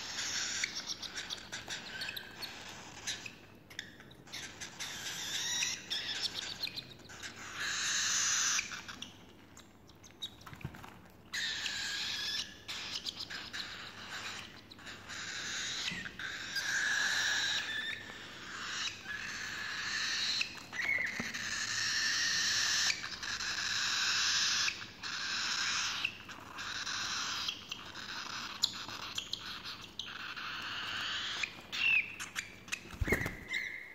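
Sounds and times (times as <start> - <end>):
chicks begging calls: 11.4 - 33.9.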